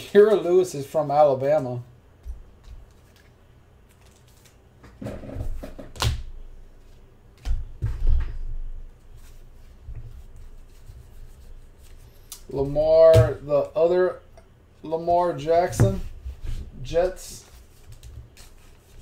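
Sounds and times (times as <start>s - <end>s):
cards rustling: 2.6s - 4.6s, 17.0s - 19.0s.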